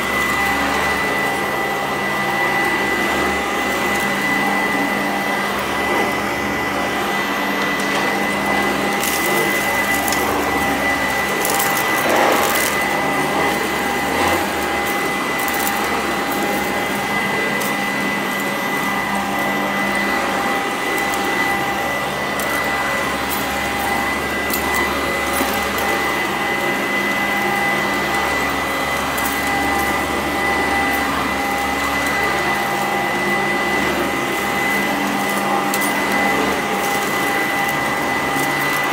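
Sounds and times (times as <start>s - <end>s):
upright vacuum cleaner running: 0.0s - 38.9s.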